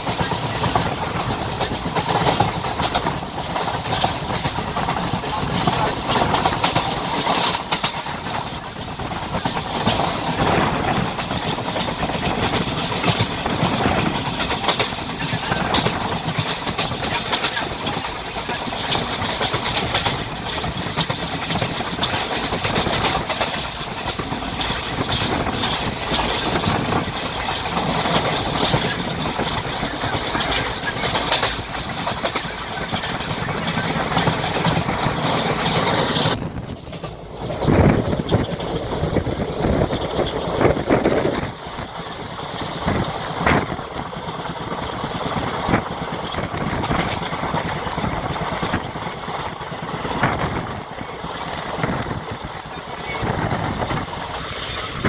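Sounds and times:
train wheels rumbling on track: 0.0 - 55.0.

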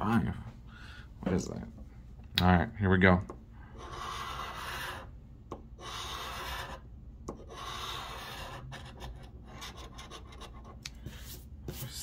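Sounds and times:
scraper scratching lottery ticket: 3.7 - 5.1, 5.8 - 10.7.

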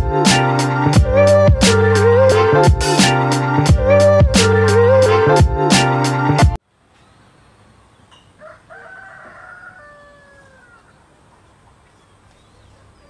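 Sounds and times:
rooster crowing: 8.4 - 11.1.

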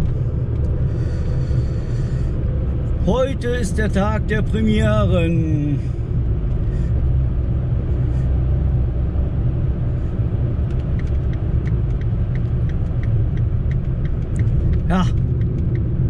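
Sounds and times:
car engine and tyre drone: 0.0 - 16.0
light regular ticking: 10.6 - 16.0.

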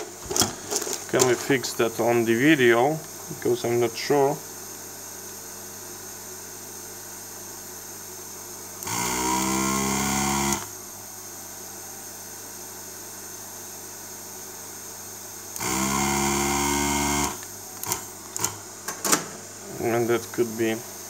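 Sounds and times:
vacuum pump motor drone: 7.2 - 18.8.

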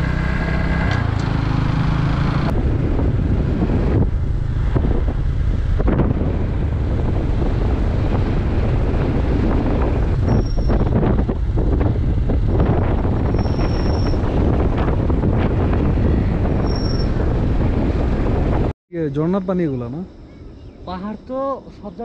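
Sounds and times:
wind buffeting microphone: 2.2 - 18.8.

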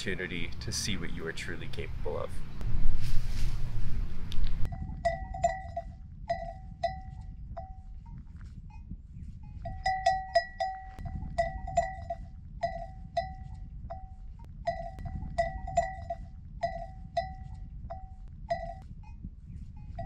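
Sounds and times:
low rumble: 0.0 - 20.0
livestock bell clanking: 4.7 - 7.9, 9.5 - 19.2.

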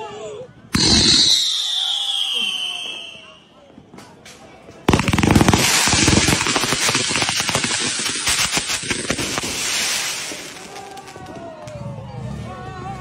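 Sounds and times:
firework hissing and crackling: 0.8 - 2.6, 4.9 - 11.4.

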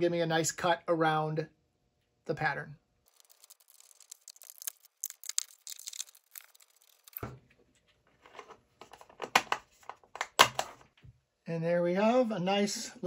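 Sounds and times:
plastic crinkling: 3.1 - 7.4
plastic clicks and knocks: 8.4 - 10.8.

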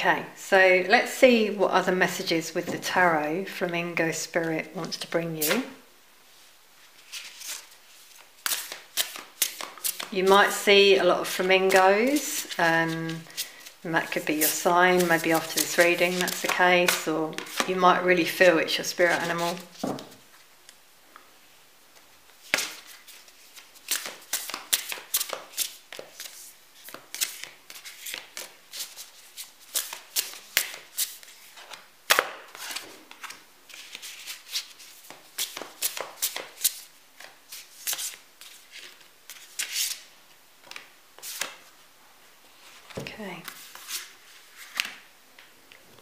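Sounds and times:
cards flicking and slapping on table: 29.7 - 33.3.

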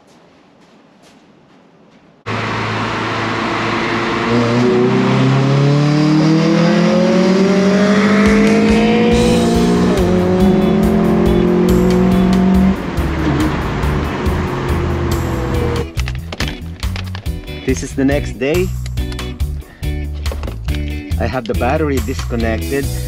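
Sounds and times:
car engine accelerating: 2.3 - 16.0
music playing: 7.8 - 23.0.

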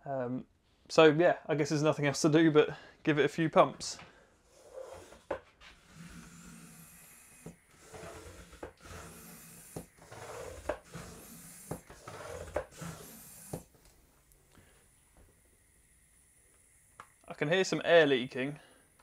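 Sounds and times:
air pump strokes: 4.5 - 13.8.

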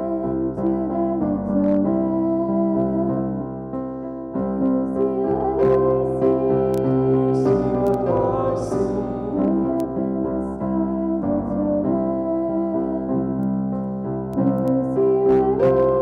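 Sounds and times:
electric keyboard chords: 0.0 - 16.0
people singing: 4.6 - 13.1, 14.4 - 16.0.

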